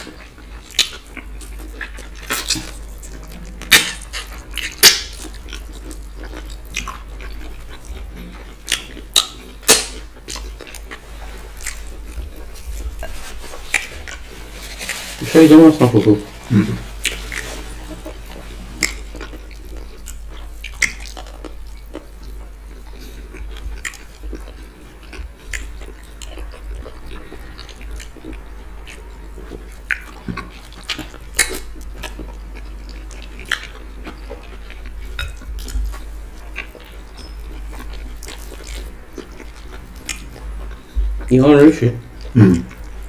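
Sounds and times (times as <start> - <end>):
wet chewing smacks and clicks: 0.0 - 13.0, 17.0 - 41.3
steady low hum: 0.0 - 43.0.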